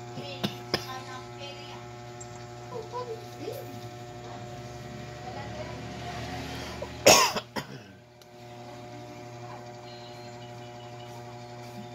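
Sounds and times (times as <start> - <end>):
steady electrical hum: 0.0 - 11.9
person coughing: 7.0 - 8.0.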